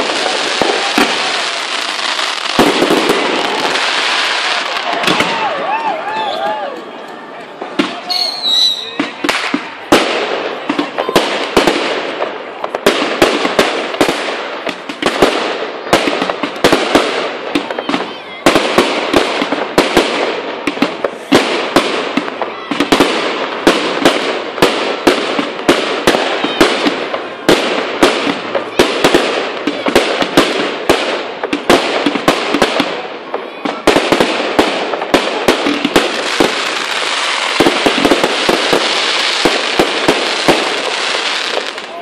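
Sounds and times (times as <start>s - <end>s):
fireworks hiss: 0.0s - 5.0s, 18.9s - 33.0s, 34.0s - 41.9s
fireworks bangs: 0.0s - 42.0s
fireworks crackle: 0.0s - 42.0s.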